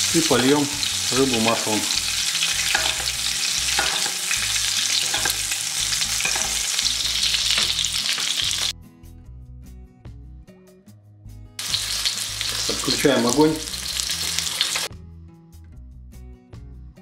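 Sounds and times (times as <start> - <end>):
fish sizzling in a pan: 0.0 - 8.7, 11.6 - 14.9
soft background music: 0.0 - 17.0
spoon knocking on pan: 2.6 - 8.7.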